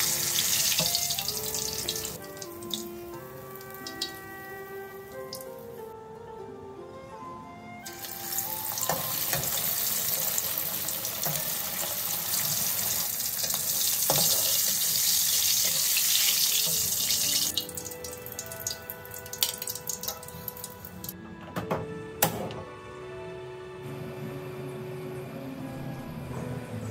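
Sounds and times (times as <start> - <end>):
oil crackling and popping: 0.0 - 4.4, 7.9 - 21.1
fish sizzling in hot oil: 0.0 - 4.5, 7.9 - 20.8.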